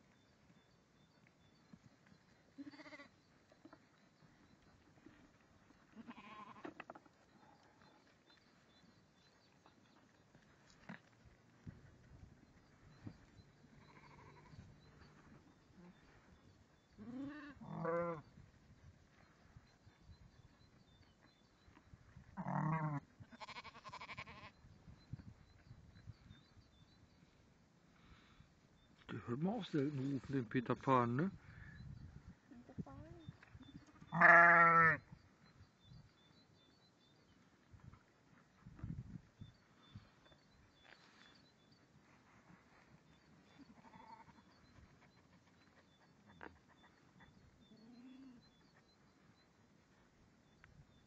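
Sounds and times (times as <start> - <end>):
sheep bleating: 2.6 - 3.1, 6.0 - 6.8, 13.8 - 14.6, 17.0 - 18.2, 22.4 - 24.5, 34.0 - 35.0, 43.7 - 44.5.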